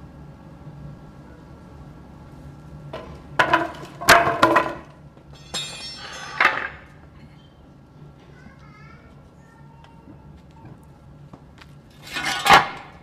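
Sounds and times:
steady low hum: 0:00.0 - 0:13.0
hard objects knocking and clanking: 0:03.0 - 0:06.9
ringing metal scrape: 0:12.0 - 0:12.8.

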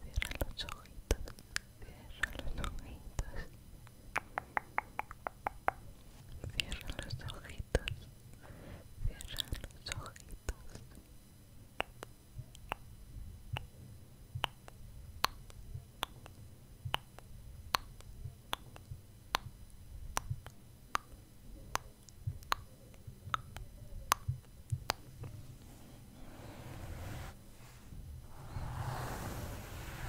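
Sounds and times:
brush rubbing on microphone: 0:25.4 - 0:30.0.

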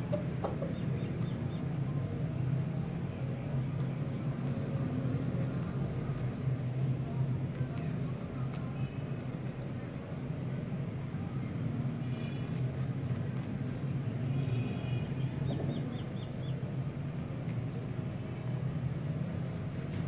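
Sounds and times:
birds chirping: 0:00.0 - 0:04.2, 0:14.8 - 0:16.8.

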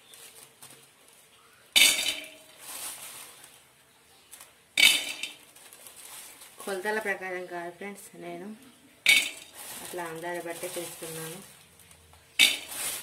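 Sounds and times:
peanuts clattering in metal pot: 0:01.8 - 0:03.3, 0:04.8 - 0:07.2, 0:09.0 - 0:11.7, 0:12.4 - 0:13.0.

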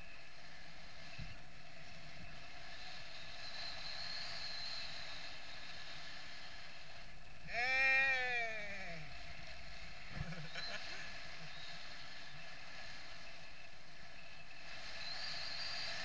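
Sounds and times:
steady hiss: 0:00.0 - 0:16.0
sheep bleating: 0:07.5 - 0:09.0.

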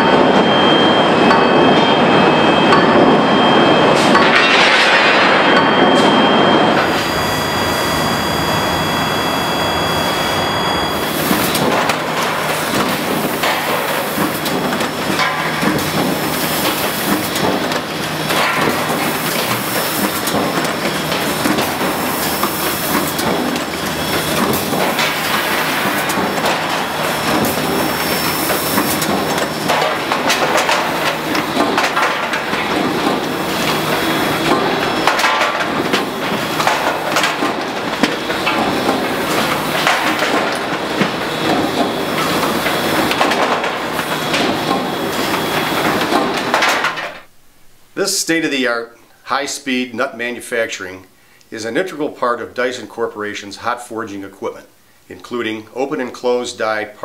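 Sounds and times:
high whine of heating coils: 0:00.0 - 0:57.0
machine clatter with metallic knocks: 0:02.7 - 0:07.0, 0:11.2 - 0:47.3.

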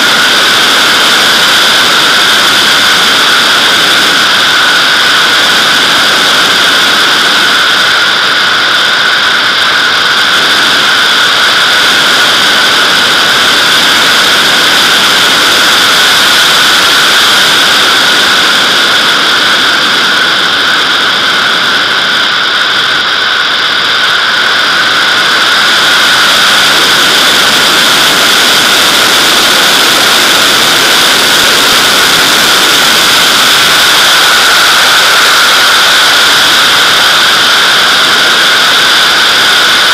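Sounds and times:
rush of airflow: 0:00.0 - 0:39.9.

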